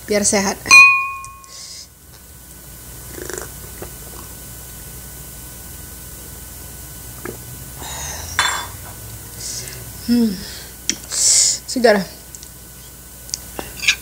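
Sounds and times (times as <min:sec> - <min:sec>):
glass clinking on table: 0:00.7 - 0:01.5.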